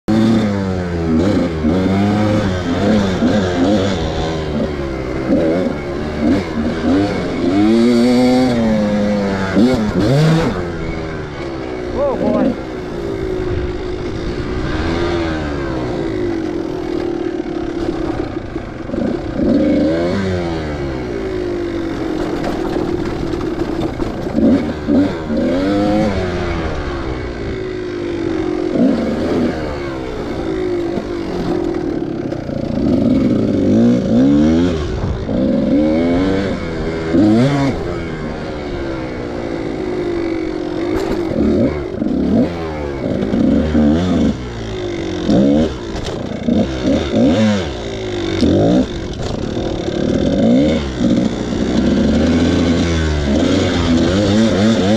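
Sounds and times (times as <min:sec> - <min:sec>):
dirt bike engine revving: 0:00.0 - 0:54.9.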